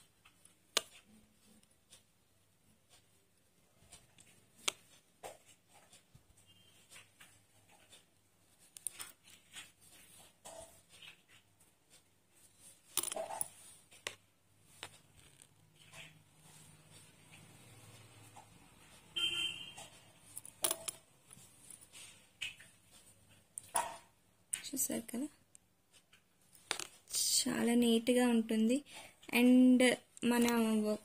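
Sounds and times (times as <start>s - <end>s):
thread rasping through cloth: 0.0s - 18.5s.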